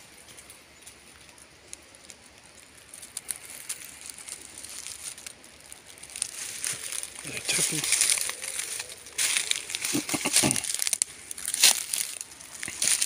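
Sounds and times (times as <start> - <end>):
footsteps on dry leaves: 0.9 - 13.0
twigs snapping: 0.9 - 13.0.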